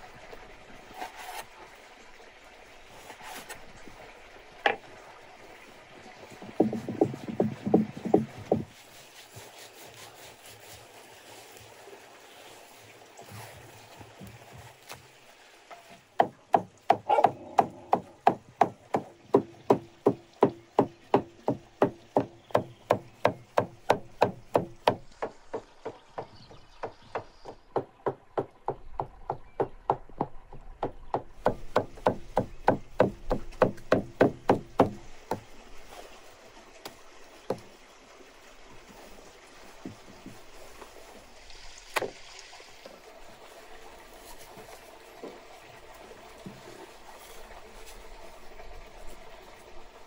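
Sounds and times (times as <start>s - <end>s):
cleaver chopping meat on wood: 16.2s - 35.4s.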